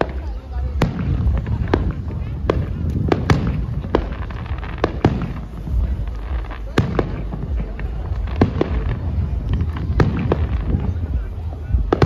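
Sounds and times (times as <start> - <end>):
fireworks bangs: 0.0 - 12.0
steady low noise: 0.0 - 12.0.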